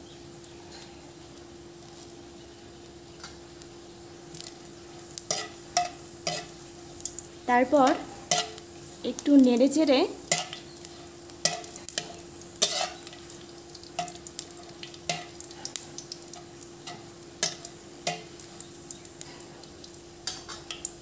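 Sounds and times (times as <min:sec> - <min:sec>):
spices sizzling in hot oil: 0:00.0 - 0:21.0
spatula scraping and tapping a pan: 0:05.2 - 0:07.2, 0:07.9 - 0:08.6, 0:10.3 - 0:19.3, 0:20.2 - 0:20.9.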